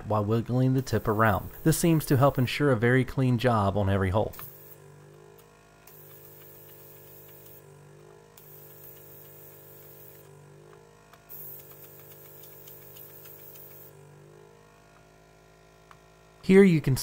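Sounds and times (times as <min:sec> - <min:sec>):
vacuum pump humming: 0:00.0 - 0:02.5, 0:04.2 - 0:15.1.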